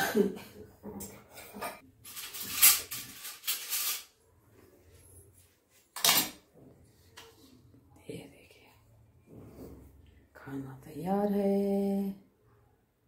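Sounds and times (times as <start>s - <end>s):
metal dishes scraping and clattering: 1.0s - 4.1s, 6.0s - 6.4s.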